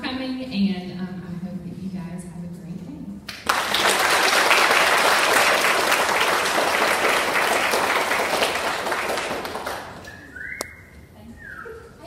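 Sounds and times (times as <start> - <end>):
audience applauding: 3.3 - 10.6.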